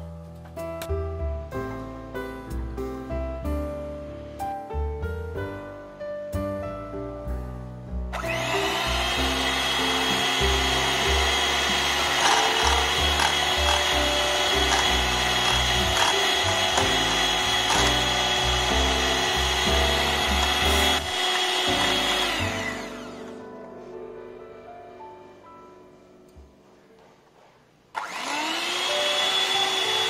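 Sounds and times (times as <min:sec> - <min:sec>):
electric mixer motor whining: 0:08.2 - 0:23.4, 0:28.0 - 0:30.0.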